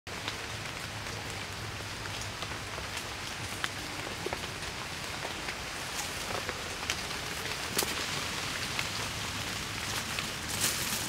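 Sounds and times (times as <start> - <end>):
drops ticking on leaves: 0.1 - 11.0
rain on foliage: 0.1 - 11.0.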